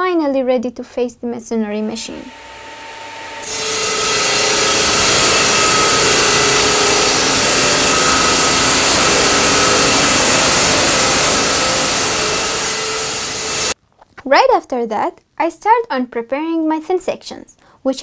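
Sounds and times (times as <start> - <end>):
masonry saw cutting rock: 1.9 - 13.8.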